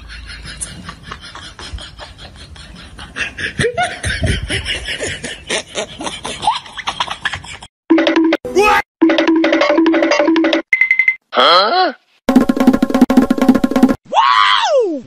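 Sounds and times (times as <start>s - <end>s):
people chuckling: 0.0s - 7.7s.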